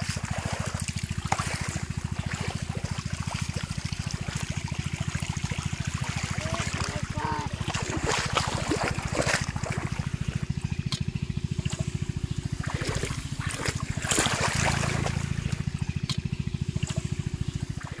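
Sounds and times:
shallow water splashing: 0:00.0 - 0:18.0
small engine throbbing: 0:00.0 - 0:18.0.

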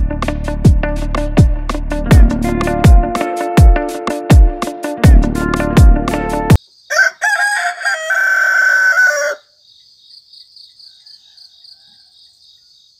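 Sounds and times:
background music: 0:00.0 - 0:06.6
crickets chirping: 0:06.6 - 0:12.9
rooster crowing: 0:06.9 - 0:09.6, 0:10.8 - 0:12.4.

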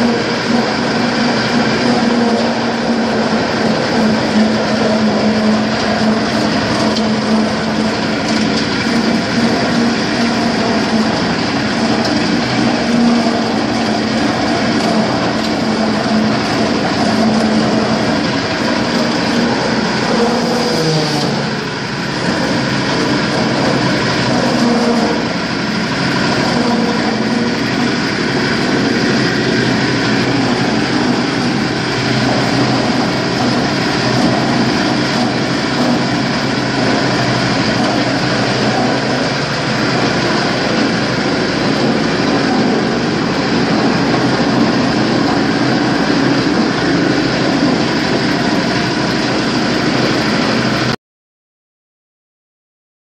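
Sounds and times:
nut splitting machine running: 0:00.0 - 0:51.0.

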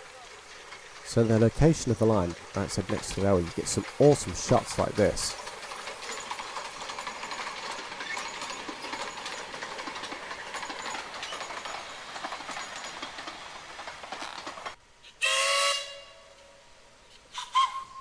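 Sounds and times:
train carriages clattering over rails: 0:00.0 - 0:14.8
steam whistle blast: 0:15.2 - 0:16.6, 0:17.3 - 0:18.0.

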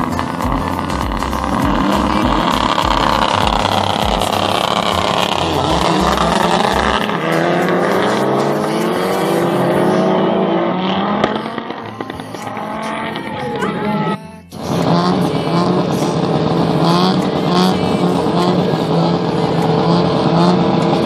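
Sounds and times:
race car engines revving: 0:00.0 - 0:21.0.

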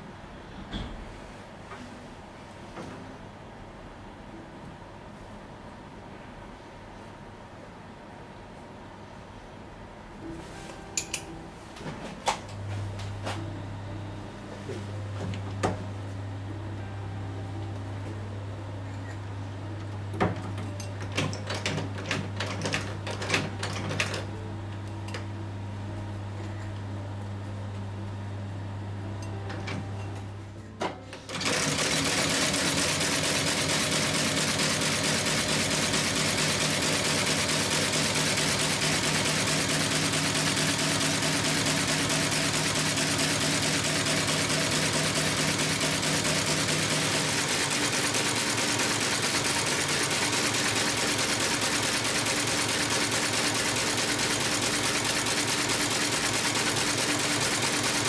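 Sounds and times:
stitching machine clattering: 0:20.4 - 0:24.3, 0:31.3 - 0:58.0.

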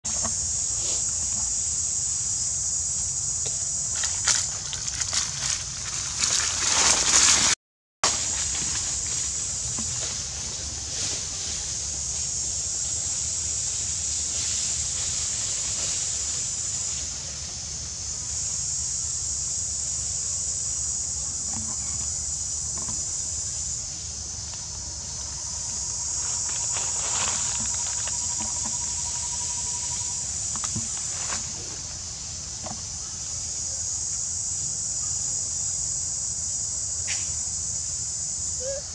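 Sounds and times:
high-pitched insect drone: 0:00.1 - 0:07.5, 0:08.1 - 0:38.9
dry leaves crunching: 0:03.9 - 0:12.4, 0:25.9 - 0:30.0.

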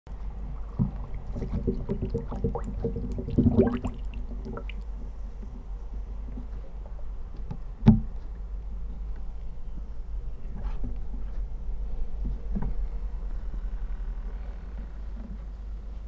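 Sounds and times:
cardboard box crinkling underwater: 0:00.5 - 0:04.8.

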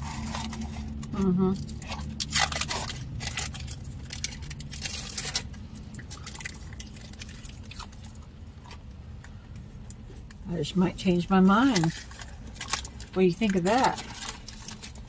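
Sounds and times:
chewing and biting: 0:00.0 - 0:10.4
food wrappers rustling: 0:00.0 - 0:15.0.

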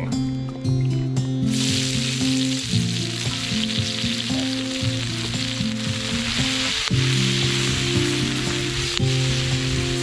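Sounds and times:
vegetables sizzling in a pan: 0:01.5 - 0:10.0.

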